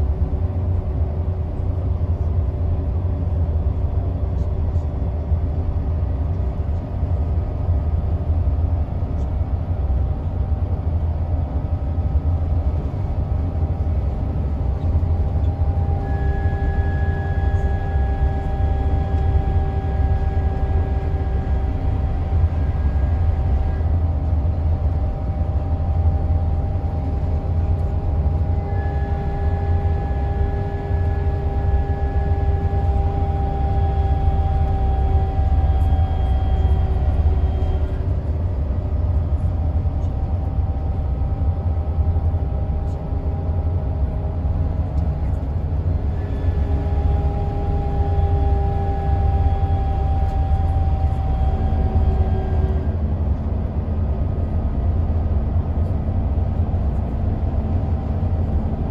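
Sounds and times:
coach drivetrain and road drone: 0.0 - 58.9
retarder braking whine: 12.5 - 58.9.

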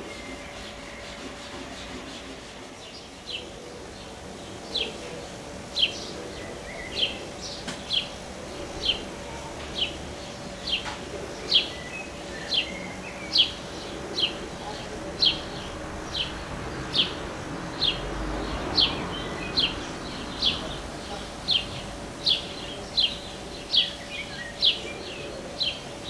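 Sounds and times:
bird chirping: 5.7 - 26.0.

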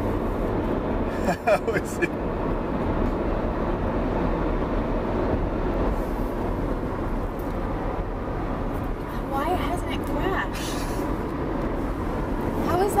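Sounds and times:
car road and wind noise: 0.0 - 13.0.

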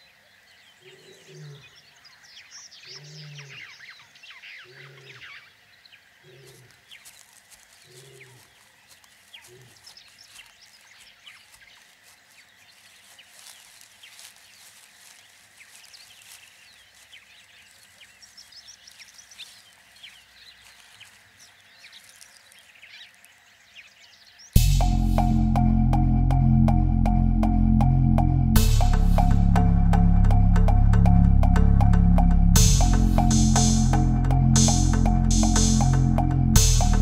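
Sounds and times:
birds chirping: 0.0 - 37.0
faint lion grunts: 0.8 - 1.8, 2.9 - 3.7, 4.7 - 5.3, 6.2 - 6.8.

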